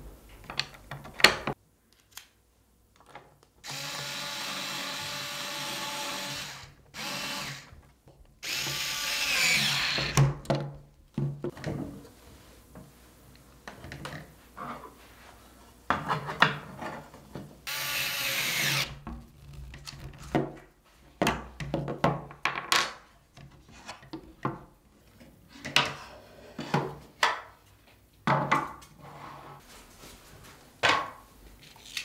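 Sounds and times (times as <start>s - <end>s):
power screwdriver whirring: 3.6s - 7.7s, 8.4s - 10.2s, 17.7s - 18.9s.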